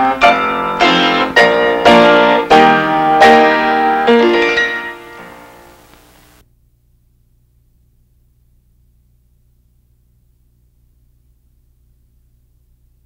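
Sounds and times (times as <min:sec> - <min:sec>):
slow piano chords: 0:00.0 - 0:06.1.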